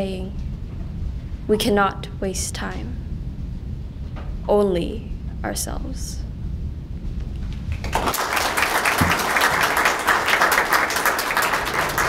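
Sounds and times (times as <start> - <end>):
audience applauding: 7.7 - 12.0.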